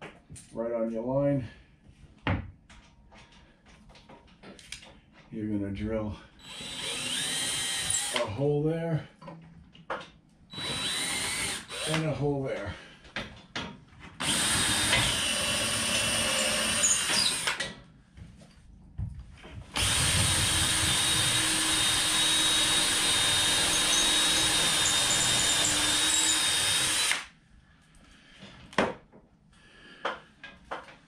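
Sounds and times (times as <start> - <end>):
cordless drill drilling: 6.4 - 8.3, 10.5 - 12.1, 14.2 - 17.8, 19.7 - 27.3.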